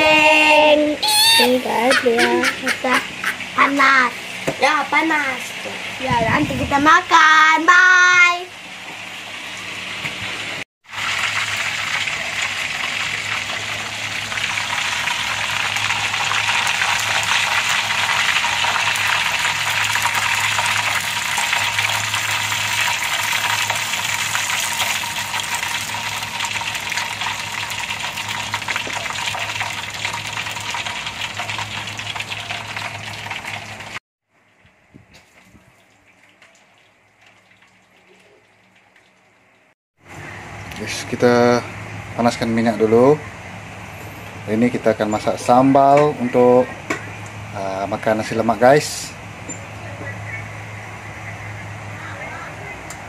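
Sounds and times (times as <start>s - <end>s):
fish sizzling in hot oil: 8.6s - 34.0s.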